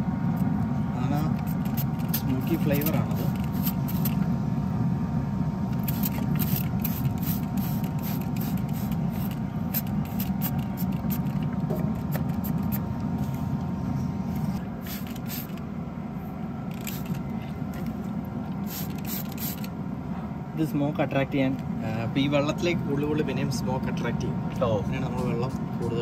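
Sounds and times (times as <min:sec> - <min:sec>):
steady low rumble: 0:00.0 - 0:26.0
spray bottle squirts: 0:01.4 - 0:04.2, 0:05.8 - 0:13.4, 0:14.8 - 0:15.6, 0:18.6 - 0:19.7.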